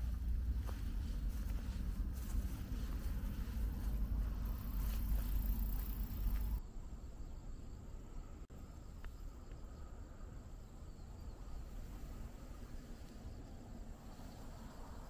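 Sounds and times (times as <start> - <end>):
wind rumble on microphone: 0.0 - 6.6
crickets chirping: 0.0 - 15.0.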